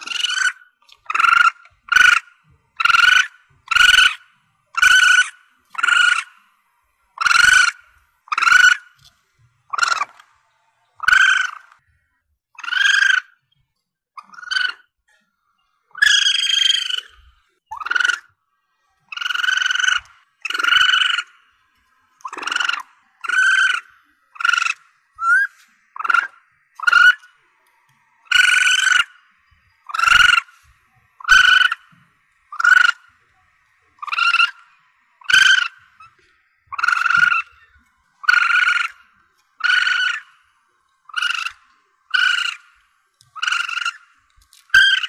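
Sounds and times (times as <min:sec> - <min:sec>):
civet high cries: 0:00.0 - 0:09.1, 0:09.7 - 0:11.9, 0:12.5 - 0:13.4, 0:14.2 - 0:15.0, 0:15.9 - 0:18.4, 0:19.0 - 0:45.0.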